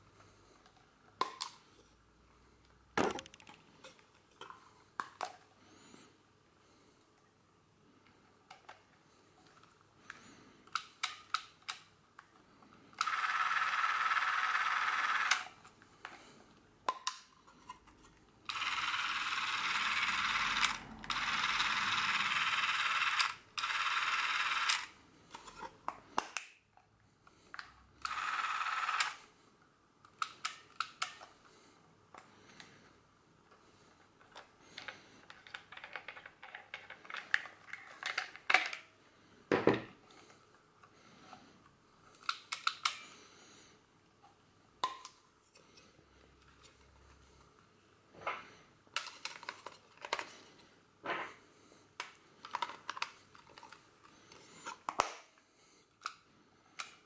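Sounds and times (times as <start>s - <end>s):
camera motor whirring: 18.5s - 24.9s, 28.0s - 29.2s.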